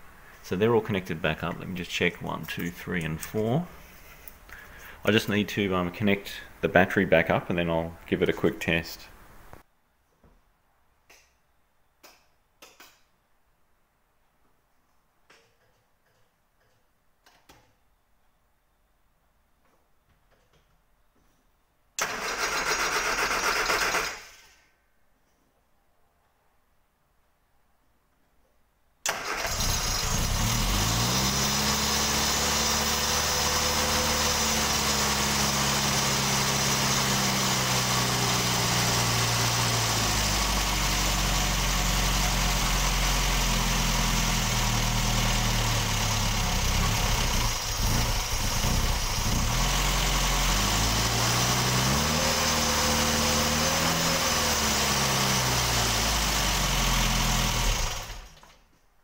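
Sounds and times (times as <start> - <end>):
car engine idling and revving: 29.4 - 58.4.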